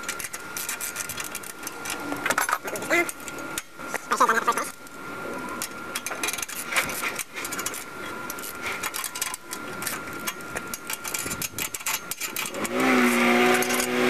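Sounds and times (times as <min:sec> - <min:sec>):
lawnmower engine running: 0:12.5 - 0:14.0.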